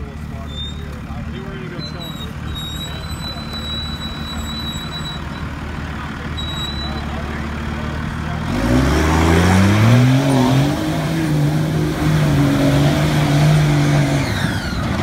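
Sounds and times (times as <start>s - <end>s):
diesel engine revving: 0.0s - 15.0s.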